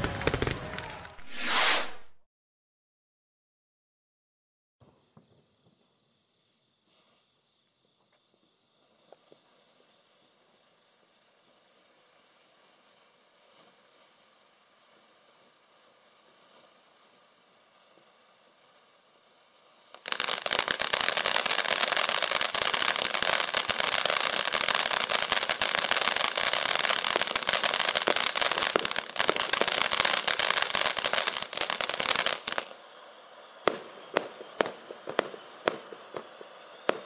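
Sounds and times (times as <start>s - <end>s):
fireworks fountain crackling hiss: 4.9s - 37.0s
sharp firework pops: 33.6s - 37.0s.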